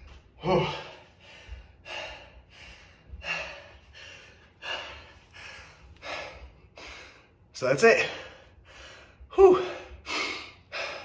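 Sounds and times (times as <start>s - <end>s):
man breathing hard: 0.0s - 11.0s.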